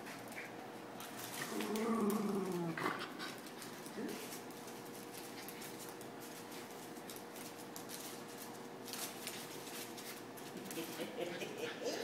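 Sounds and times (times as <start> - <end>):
puppy paws scrabbling on wood floor: 0.0 - 11.2.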